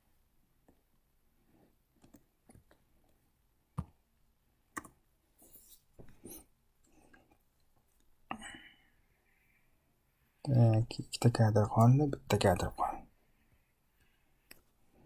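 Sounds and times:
computer mouse clicks: 2.0 - 2.8, 4.7 - 5.0.

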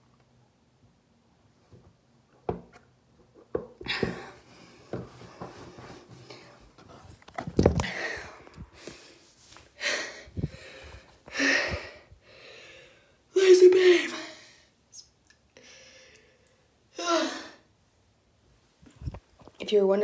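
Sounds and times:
heavy breathing: 7.8 - 13.2.

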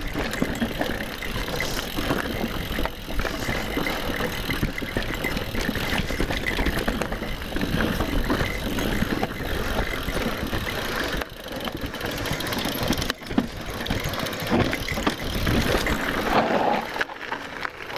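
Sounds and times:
bike chain and frame clatter: 0.0 - 17.9
bike tyres on dirt and rock: 0.0 - 17.9.

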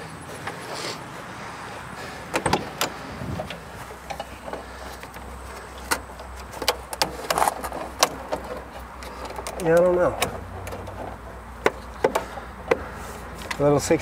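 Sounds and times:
hands clicking and knocking on car: 5.8 - 13.6.

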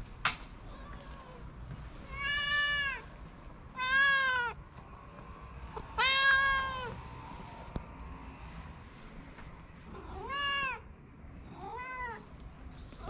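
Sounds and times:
cat meowing: 2.0 - 3.1, 3.7 - 4.6, 6.0 - 7.0, 9.9 - 10.9, 11.5 - 12.3.

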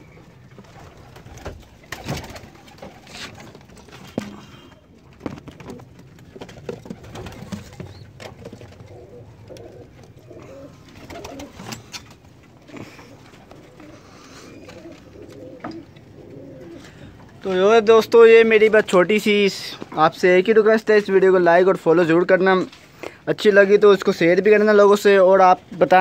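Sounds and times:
pigeons cooing: 0.0 - 17.4.

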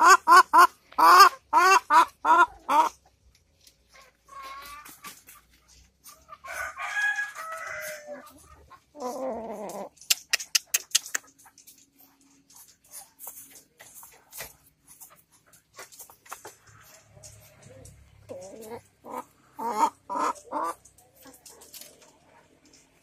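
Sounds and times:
hen calling: 18.3 - 20.8.

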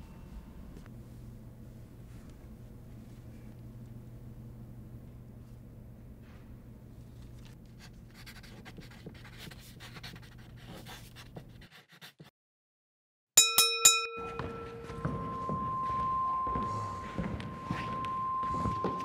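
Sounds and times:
steady low hum: 0.0 - 9.9, 14.2 - 19.0
boxing ring bell strikes: 13.4 - 19.0.

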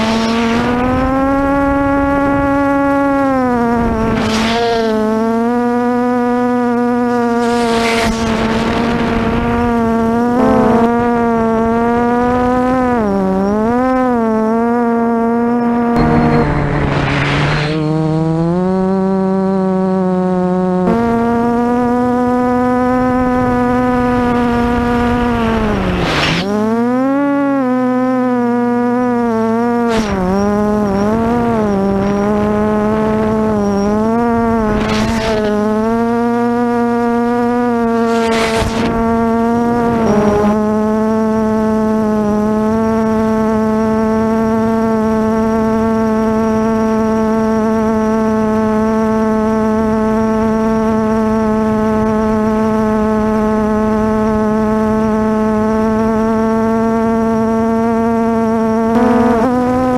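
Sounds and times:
drone motors humming: 0.0 - 59.9
rush of noise: 7.2 - 11.1, 15.9 - 18.4.

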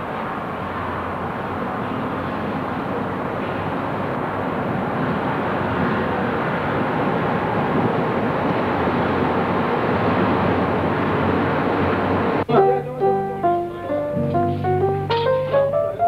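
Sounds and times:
car engine and road noise: 0.0 - 12.5.

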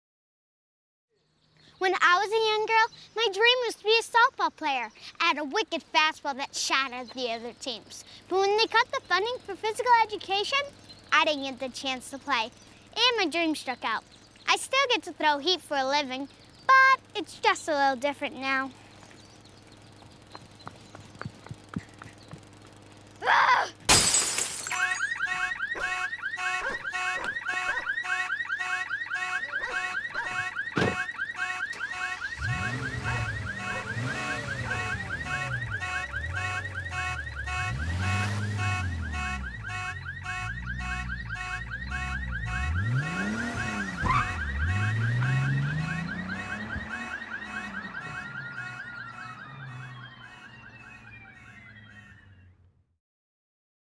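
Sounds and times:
car alarm repeating electronic tone: 24.7 - 52.6
rising and falling siren sweeps: 25.0 - 52.6.

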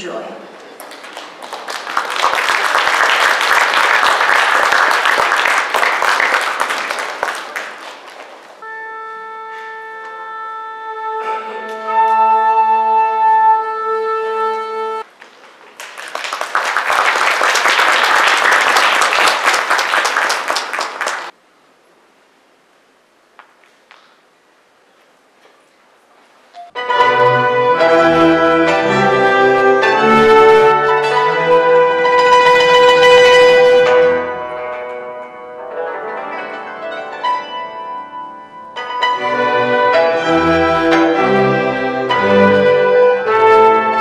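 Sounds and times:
audience applauding: 0.7 - 8.6, 15.2 - 21.4
orchestra tuning note: 8.6 - 15.0, 26.8 - 44.0.

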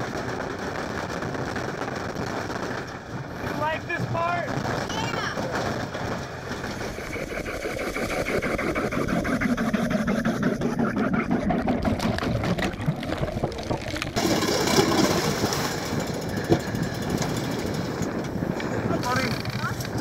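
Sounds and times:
gas-powered ice auger drilling: 6.6 - 20.0.

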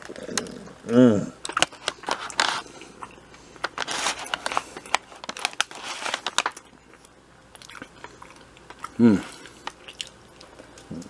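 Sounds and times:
paper bag crinkling: 1.5 - 2.7, 3.6 - 6.8.

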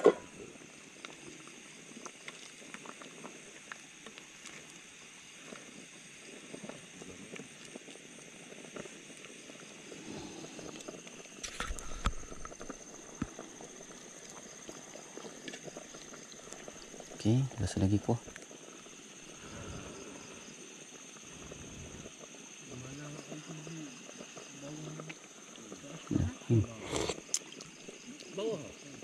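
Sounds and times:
stew bubbling: 0.0 - 29.0.

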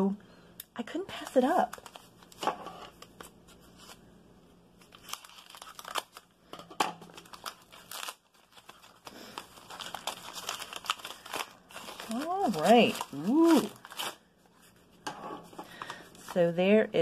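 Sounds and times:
paper packaging crinkling and tearing: 0.9 - 4.0, 4.8 - 6.3, 7.0 - 14.9.

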